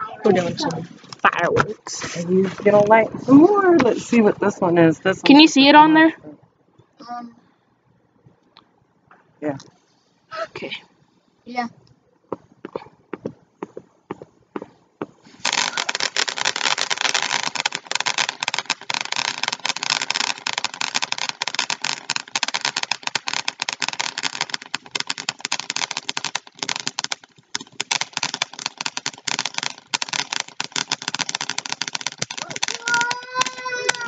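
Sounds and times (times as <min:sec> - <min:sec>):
firework crackling hiss: 0:00.0 - 0:04.3, 0:14.6 - 0:34.0.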